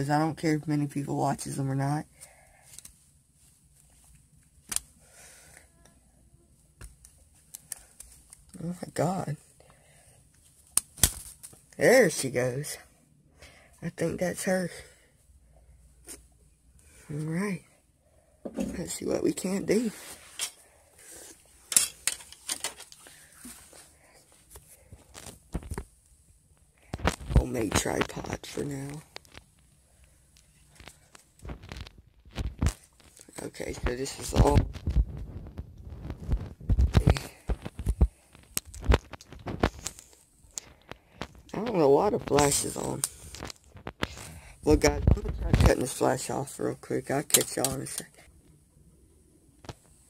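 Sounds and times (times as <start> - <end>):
sharp handling clicks and knocks: 21.7 - 23.1.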